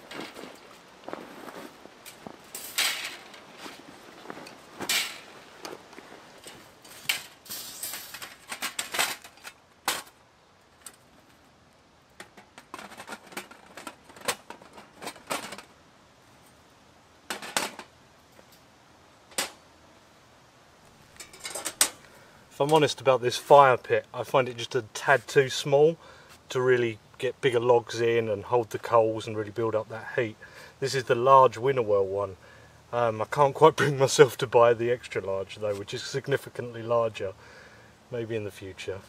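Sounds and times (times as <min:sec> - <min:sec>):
steel plates clanking and scraping: 0:02.1 - 0:03.8, 0:04.8 - 0:05.4, 0:06.4 - 0:10.2, 0:21.2 - 0:22.0.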